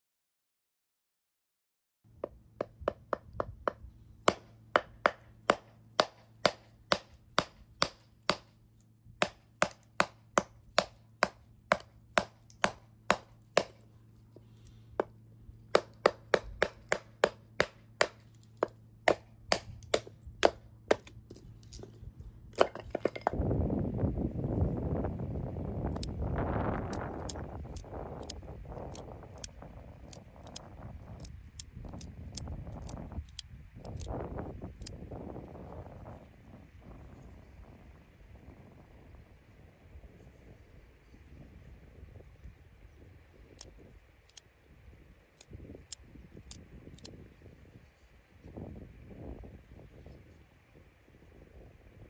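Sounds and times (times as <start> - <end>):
sharp knocks on wooden board: 2.2 - 8.5, 9.2 - 13.8.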